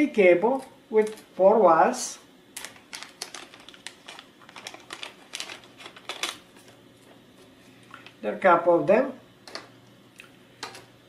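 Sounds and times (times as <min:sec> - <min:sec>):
plastic bag crinkling: 0:02.6 - 0:07.2.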